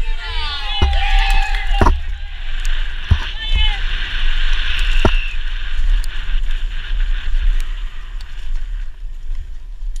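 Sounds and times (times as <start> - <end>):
wind buffeting microphone: 0.0 - 10.0
bike rattling over ground: 0.6 - 7.4
sharp knock: 0.8 - 2.3, 3.1 - 3.3.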